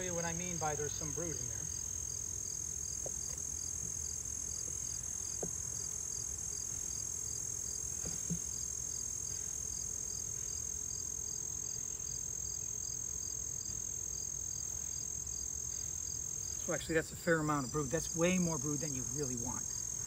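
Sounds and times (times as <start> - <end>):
insects chirping: 0.0 - 20.0
faint knocks: 3.0 - 4.0, 5.3 - 5.6, 8.0 - 8.6.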